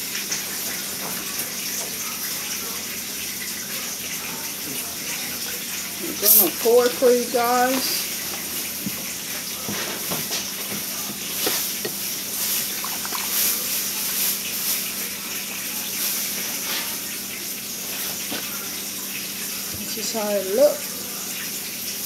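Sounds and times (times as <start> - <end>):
soda pouring into glass: 10.9 - 19.8.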